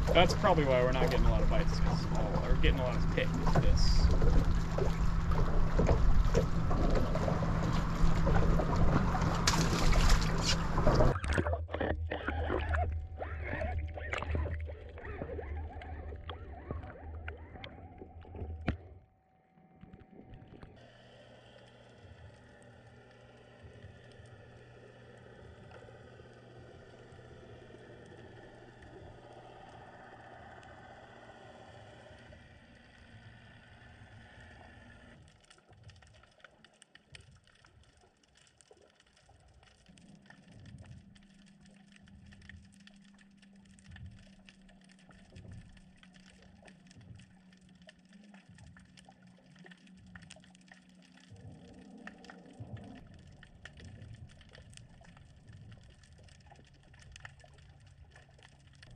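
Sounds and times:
low underwater drone: 0.0s - 58.9s
underwater low hum with tones: 0.0s - 58.9s
crackling clicks: 35.1s - 58.9s.

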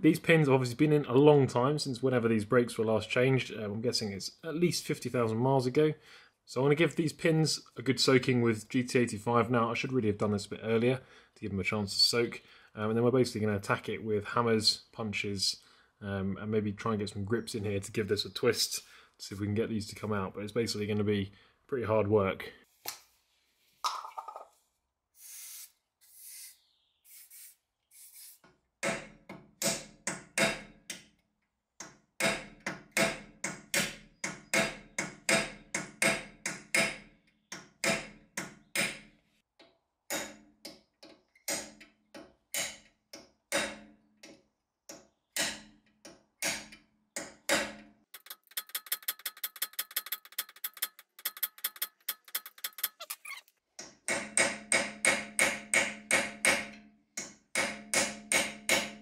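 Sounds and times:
hammer striking metal punch: 54.1s - 56.8s, 57.6s - 59.0s.

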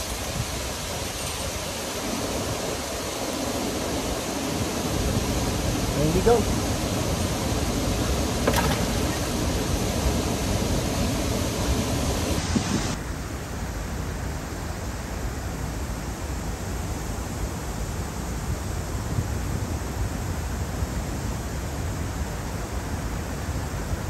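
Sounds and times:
river water rushing: 0.0s - 13.0s
wind: 0.0s - 24.0s.

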